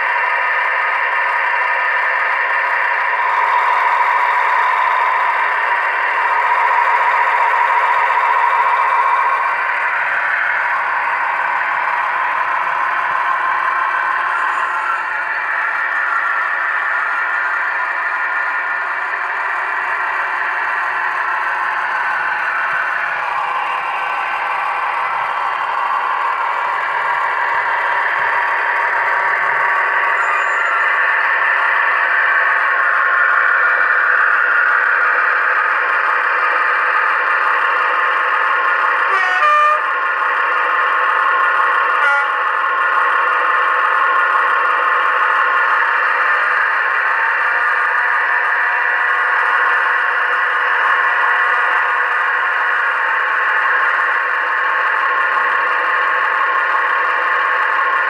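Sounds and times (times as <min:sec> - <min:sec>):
diesel engine sound from small loudspeaker: 0:00.0 - 0:58.0
brief tone: 0:14.3 - 0:15.1, 0:30.2 - 0:31.0
locomotive horn blast: 0:39.1 - 0:39.9, 0:42.0 - 0:42.4.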